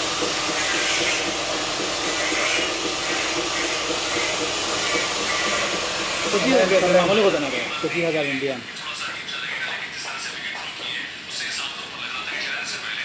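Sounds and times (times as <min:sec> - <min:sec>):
rushing air hiss: 0:00.0 - 0:08.0.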